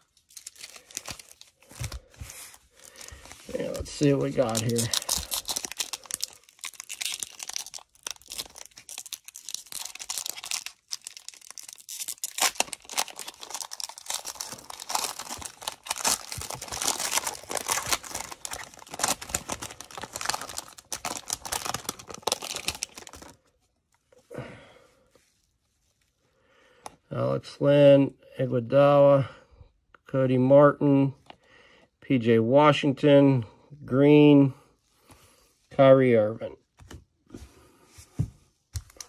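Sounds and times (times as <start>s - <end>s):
foil wrappers crinkling and ripping: 0.0s - 23.5s.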